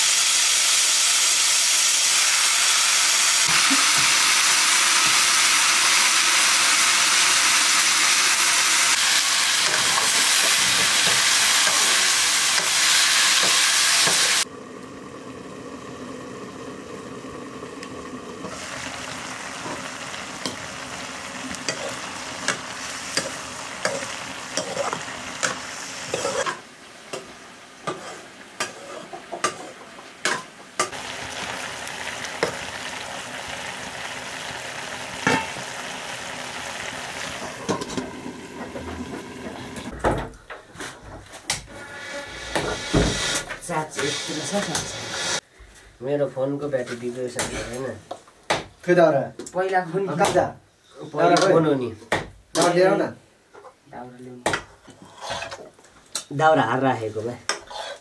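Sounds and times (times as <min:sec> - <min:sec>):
vegetables sizzling in a wok: 0:00.0 - 0:40.0, 0:40.7 - 0:46.0, 0:46.6 - 0:58.0
metal ladle scraping a pan: 0:21.6 - 0:26.6, 0:27.8 - 0:30.9, 0:41.7 - 0:45.4, 0:54.8 - 0:55.7, 0:57.5 - 0:58.0.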